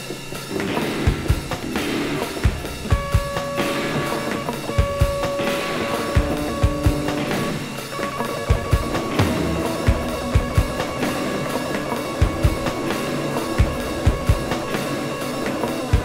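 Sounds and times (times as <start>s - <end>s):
noise rock music from vinyl: 0.0s - 16.0s
sustained tones: 7.1s - 16.0s.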